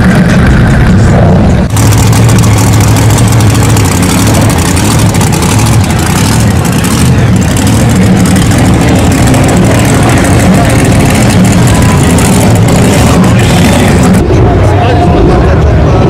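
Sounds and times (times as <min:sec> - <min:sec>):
pickup truck engine running: 0:00.0 - 0:16.0.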